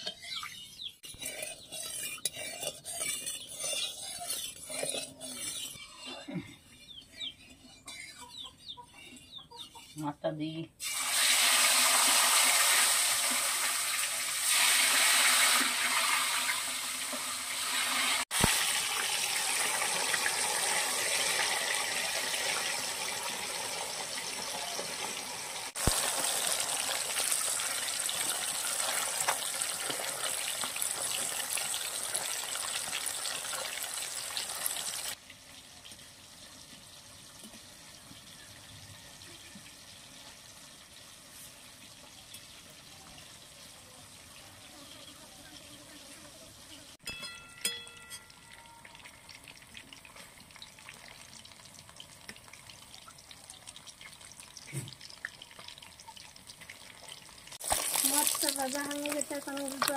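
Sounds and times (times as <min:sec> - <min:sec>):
fish sizzling in hot oil: 0:10.8 - 0:47.0, 0:48.4 - 0:59.9.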